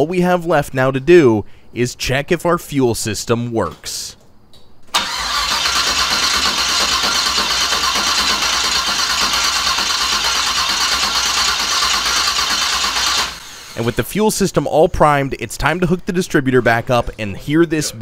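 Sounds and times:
starter cranking engine: 0:05.0 - 0:14.0.

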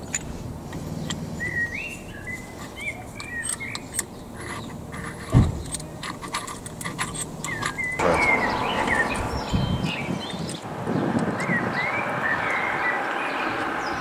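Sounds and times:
birds chirping: 0:00.8 - 0:05.0, 0:07.3 - 0:14.0
metal parts clinking: 0:02.6 - 0:07.9.

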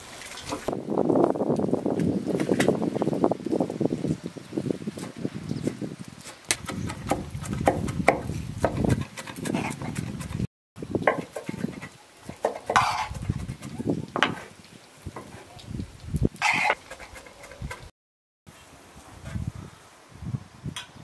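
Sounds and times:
knife on wooden cutting board: 0:11.1 - 0:13.7, 0:16.4 - 0:17.9.

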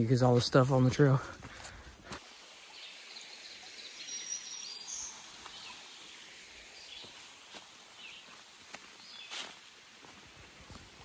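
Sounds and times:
brook trickling over rocks: 0:00.0 - 0:11.0
high bird chirp: 0:03.2 - 0:06.1.

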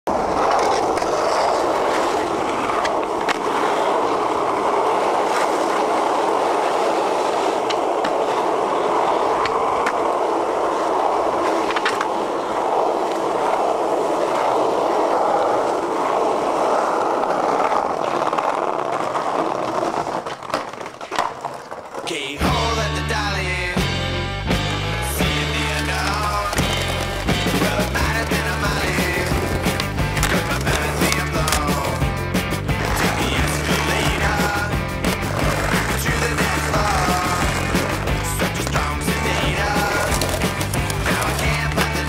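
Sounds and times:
skateboard wheels rolling on asphalt: 0:00.0 - 0:42.0
skateboard clacking on ground: 0:00.1 - 0:22.4, 0:25.6 - 0:32.1, 0:32.8 - 0:42.0.

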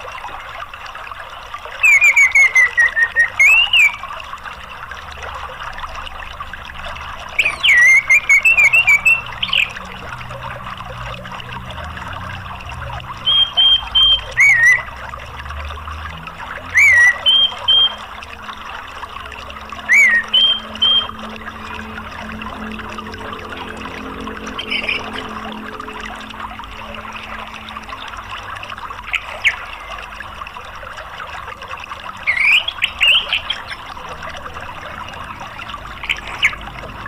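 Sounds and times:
running water: 0:00.0 - 0:37.0
thrush singing whistled notes: 0:01.6 - 0:04.2, 0:07.3 - 0:10.0, 0:13.2 - 0:15.0, 0:16.4 - 0:30.2, 0:32.2 - 0:33.8.

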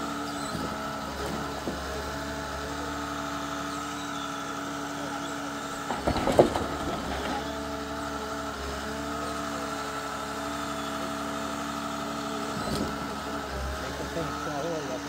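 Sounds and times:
diesel engine running: 0:00.0 - 0:15.0
logs knocking onto pile: 0:05.8 - 0:07.4.

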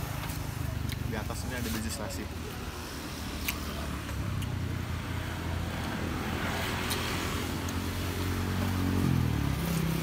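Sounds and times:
vehicle engine humming and revving: 0:02.6 - 0:10.0.

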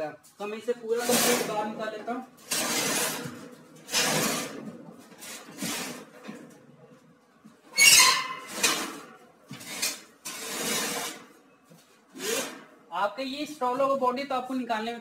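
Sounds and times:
metal scraping on metal: 0:00.9 - 0:06.2, 0:07.8 - 0:11.3
sharp metal squeak: 0:07.8 - 0:08.8.

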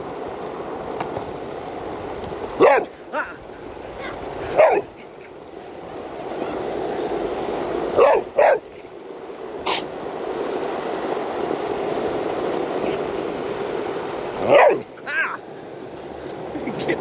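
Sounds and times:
skateboard wheels rolling on asphalt: 0:00.0 - 0:17.0
dog barking: 0:02.6 - 0:03.0, 0:04.5 - 0:04.9, 0:08.0 - 0:08.7, 0:14.4 - 0:14.8.

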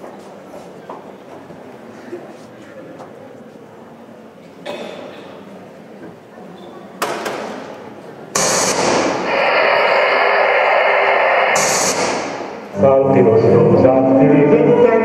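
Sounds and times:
sharp knock: 0:08.4 - 0:09.6, 0:11.6 - 0:12.6
loud crackling hiss: 0:08.4 - 0:12.7.

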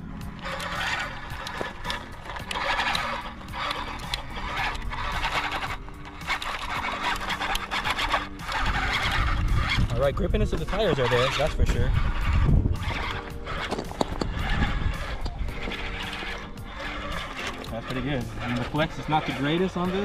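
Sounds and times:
background music: 0:00.0 - 0:20.0
toy truck motor whining: 0:00.0 - 0:20.0.

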